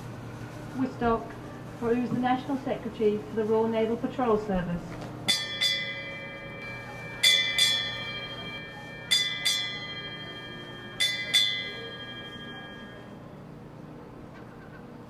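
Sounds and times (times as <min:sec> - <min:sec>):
ship's bell struck: 0:05.3 - 0:13.4.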